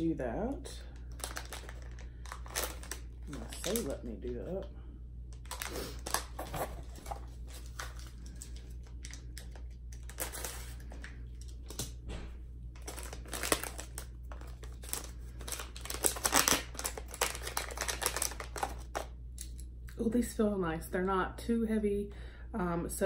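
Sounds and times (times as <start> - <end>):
packaging crinkling and tearing: 0.9 - 4.6, 5.3 - 12.0, 12.7 - 19.5.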